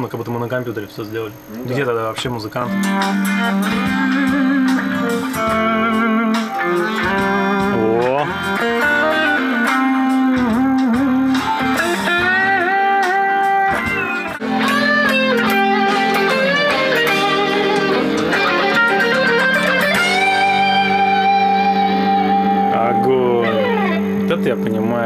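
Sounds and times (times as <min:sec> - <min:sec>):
electric guitar lead with bends: 0:01.3 - 0:25.0.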